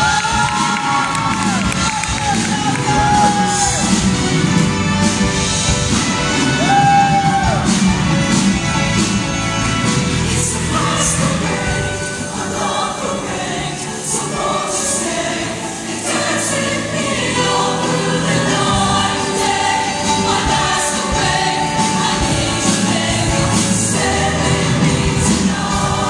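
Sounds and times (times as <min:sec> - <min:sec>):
choir singing in harmony: 0:00.0 - 0:26.0.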